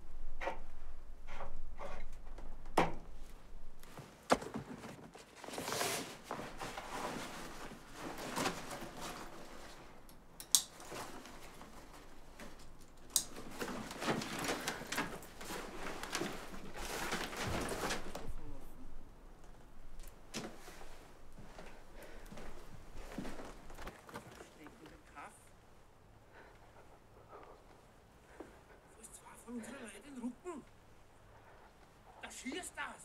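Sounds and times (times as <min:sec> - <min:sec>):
plastic bottles rustling and knocking: 0:00.4 - 0:10.1, 0:10.7 - 0:18.6, 0:20.0 - 0:24.8.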